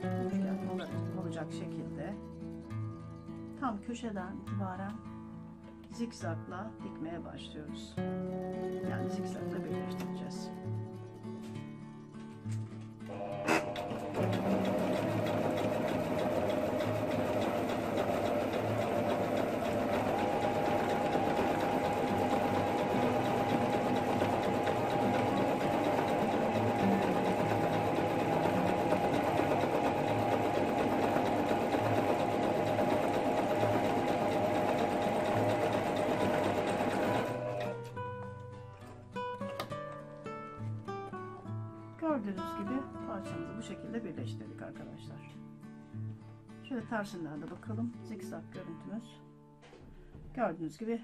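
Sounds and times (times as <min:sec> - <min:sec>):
sewing machine running: 0:13.1 - 0:37.8.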